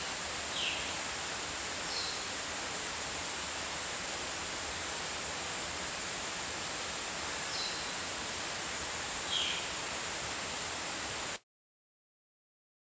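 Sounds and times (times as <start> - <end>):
steady hiss: 0.0 - 11.4.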